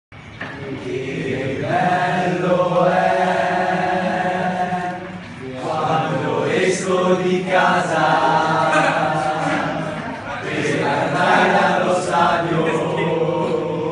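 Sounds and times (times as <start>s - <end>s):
crowd singing in unison: 0.4s - 13.9s.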